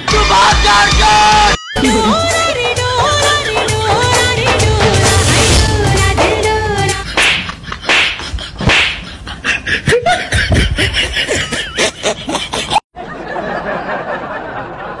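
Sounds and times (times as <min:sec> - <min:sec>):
person calling out: 0:00.8 - 0:02.3
sharp hand slaps: 0:07.2 - 0:09.1.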